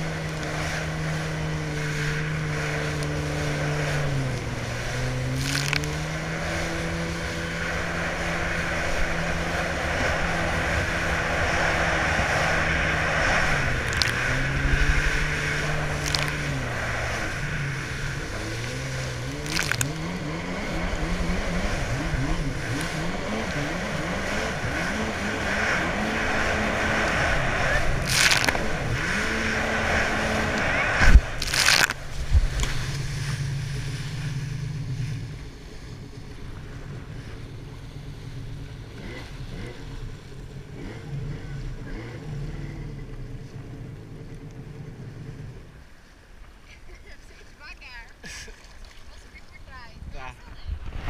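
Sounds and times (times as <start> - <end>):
water rushing and spray: 0.0 - 36.0
jet ski engine running: 0.0 - 51.0.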